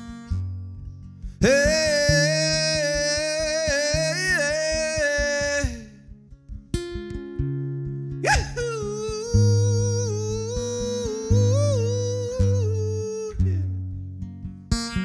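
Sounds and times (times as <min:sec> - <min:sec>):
acoustic guitar: 0:00.0 - 0:15.0
man singing a held note: 0:01.4 - 0:05.9, 0:08.2 - 0:13.6.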